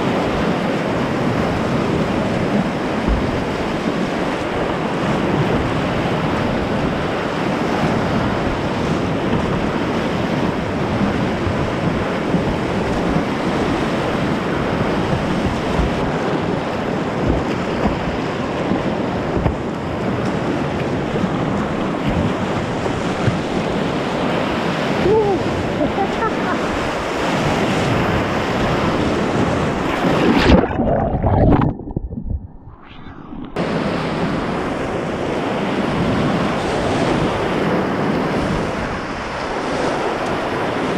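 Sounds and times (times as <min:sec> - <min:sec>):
whitewater rapids rushing: 0:00.0 - 0:30.9.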